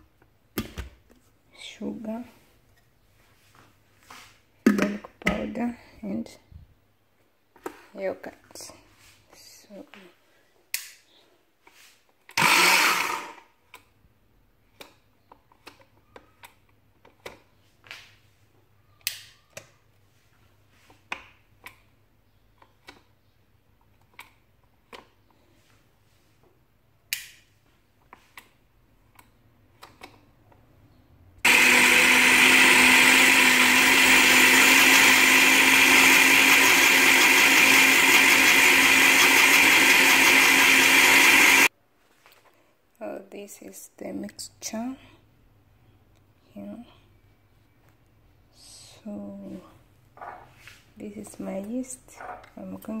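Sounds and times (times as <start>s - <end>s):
blender running: 12.4s - 13.5s, 31.5s - 41.7s.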